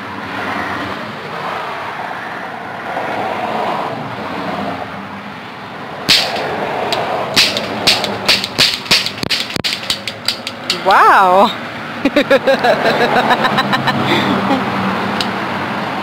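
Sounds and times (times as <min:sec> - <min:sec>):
steady background noise: 0:00.0 - 0:16.0
toy cap pistol cracks: 0:06.1 - 0:10.8.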